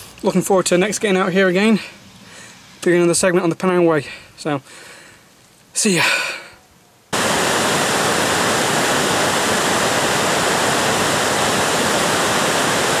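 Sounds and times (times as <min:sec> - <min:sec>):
river rushing over rapids: 0:07.2 - 0:13.0.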